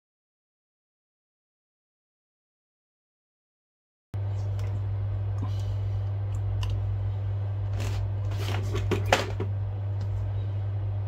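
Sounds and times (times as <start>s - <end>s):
steady low hum: 4.2s - 11.0s.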